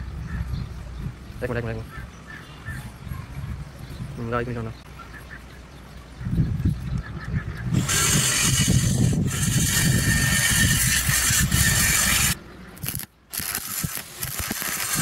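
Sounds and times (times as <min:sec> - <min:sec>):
welding arc crackling: 0:07.8 - 0:15.0.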